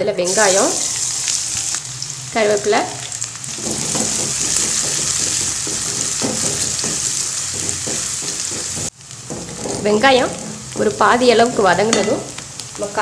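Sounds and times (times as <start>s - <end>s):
onions sizzling in hot oil: 0.1s - 13.0s
wooden spatula scraping: 3.5s - 11.9s.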